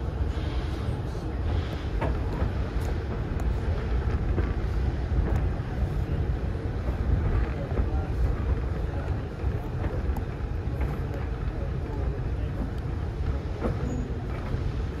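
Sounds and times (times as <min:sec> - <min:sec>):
train running rumble: 0:00.0 - 0:15.0
wind buffeting microphone: 0:00.0 - 0:15.0.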